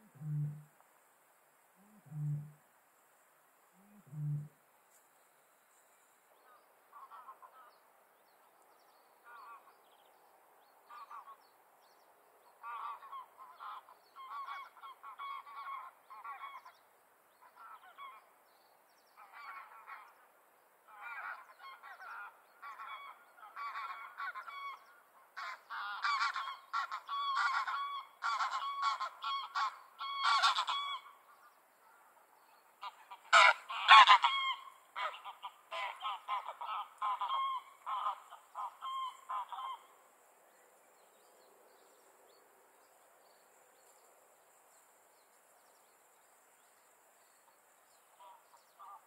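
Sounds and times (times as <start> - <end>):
cranes calling: 25.4 - 31.2, 32.8 - 39.9.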